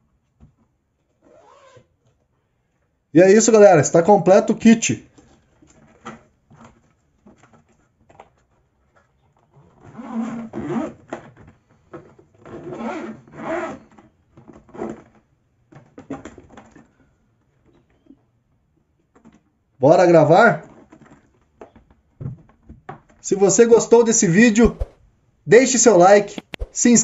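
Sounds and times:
zipper being pulled: 1.2 - 1.9, 9.5 - 11.2, 12.4 - 15.2, 24.6 - 25.0, 26.4 - 26.9.

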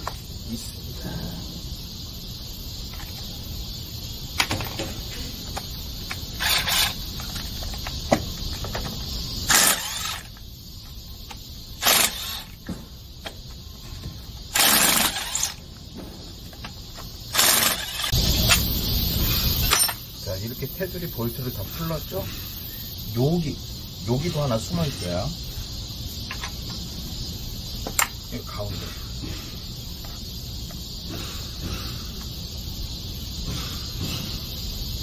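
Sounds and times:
cordless driver spinning: 6.4 - 7.0, 9.5 - 10.3, 11.8 - 12.6, 14.5 - 15.6, 17.3 - 18.2.

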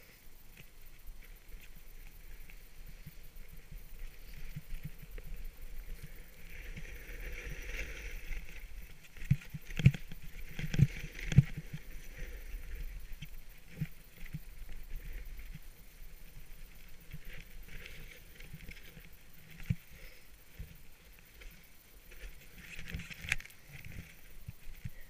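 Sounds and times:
ski edges scraping packed snow: 6.0 - 13.0.

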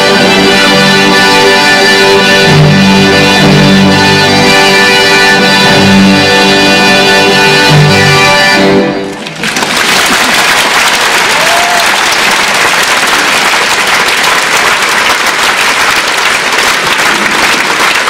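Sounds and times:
music: 0.0 - 9.2
audience applauding: 9.0 - 18.0.

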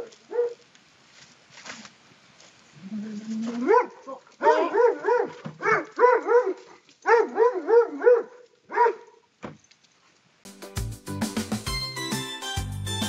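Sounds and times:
dog barking: 0.0 - 0.6, 3.6 - 9.2.

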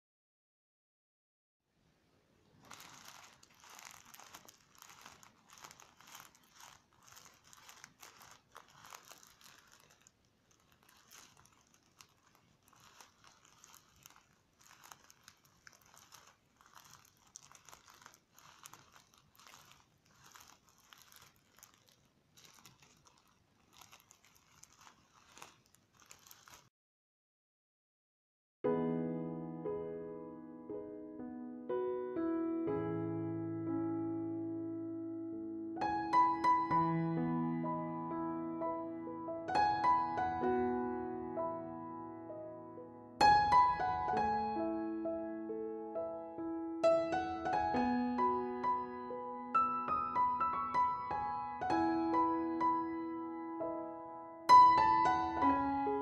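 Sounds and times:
plastic squishy crinkling: 2.4 - 26.7, 54.5 - 56.0
foam beads crunching: 2.6 - 26.7.

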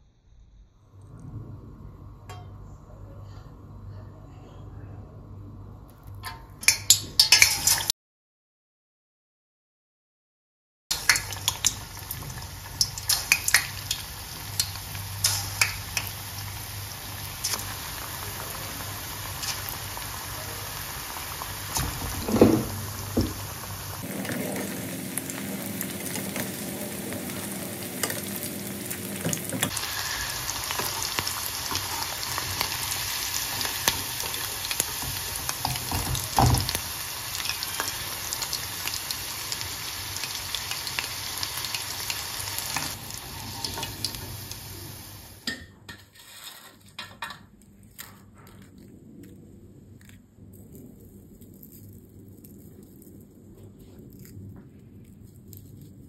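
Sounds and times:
deep-frying sizzle with pops: 6.0 - 7.9, 10.9 - 45.6.

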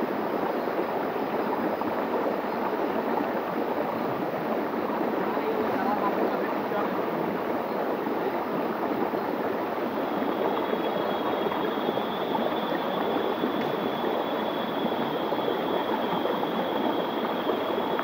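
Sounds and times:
stream rushing over rocks: 0.1 - 18.0
faint high whine: 8.4 - 18.0.

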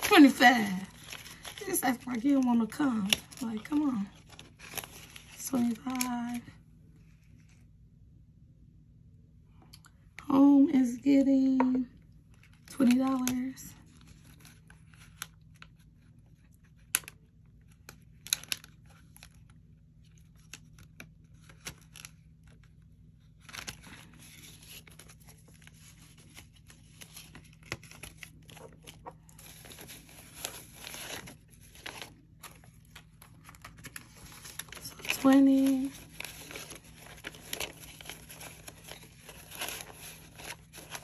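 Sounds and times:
paper bills rustling: 0.0 - 6.3, 20.2 - 41.0.

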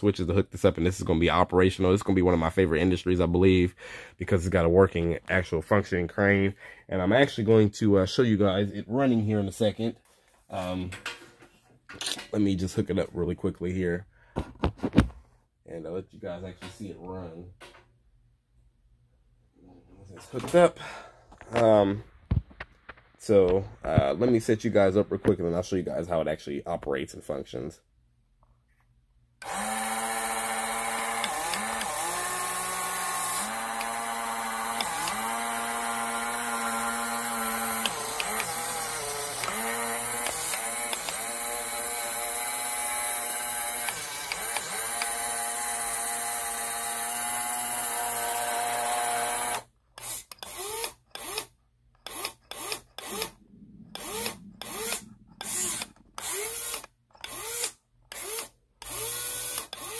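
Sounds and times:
electric motor whining: 29.4 - 49.6, 52.1 - 59.9.

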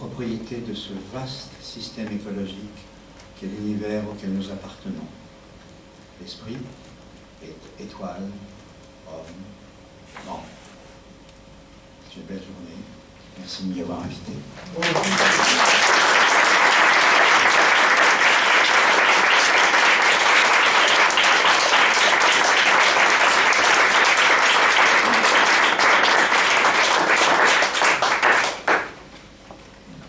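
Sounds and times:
audience applauding: 14.8 - 29.0.

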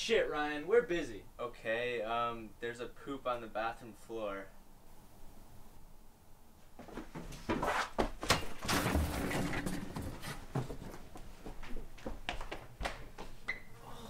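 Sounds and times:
hurried footsteps and thumps: 6.8 - 13.4.

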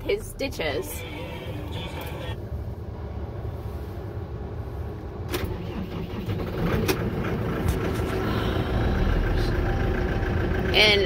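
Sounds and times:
tractor engine running: 4.7 - 11.0.

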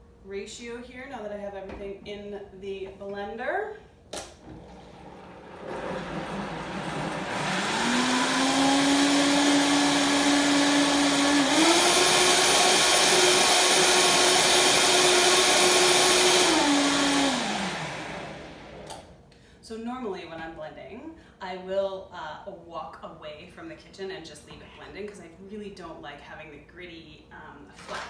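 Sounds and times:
blender motor running: 4.4 - 18.9.

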